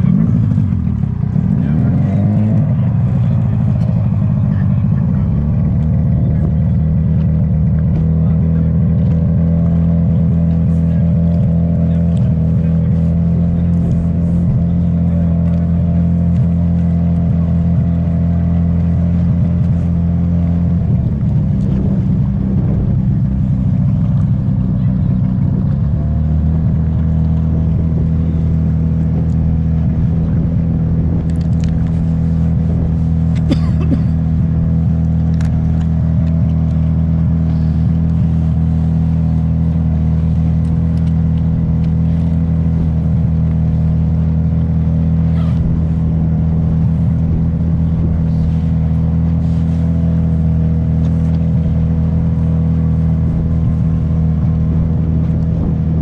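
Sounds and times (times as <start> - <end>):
boat motor droning: 0.0 - 56.0.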